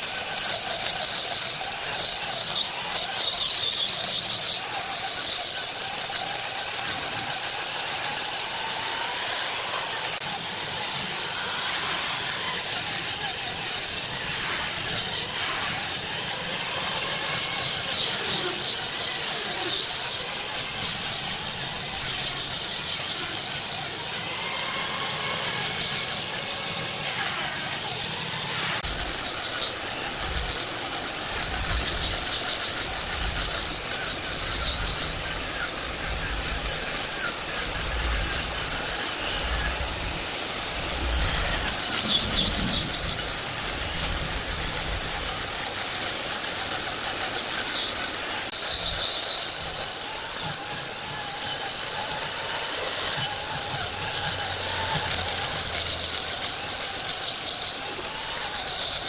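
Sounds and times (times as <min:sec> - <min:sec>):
high metallic squeals: 0:00.0 - 0:59.0
heavy machine engine rumbling: 0:37.8 - 0:45.5.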